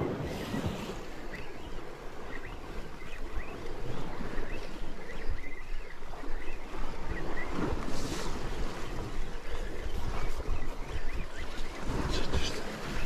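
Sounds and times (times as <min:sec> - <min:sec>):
wind buffeting microphone: 0:00.0 - 0:13.0
sea washing against rocks: 0:06.2 - 0:13.0.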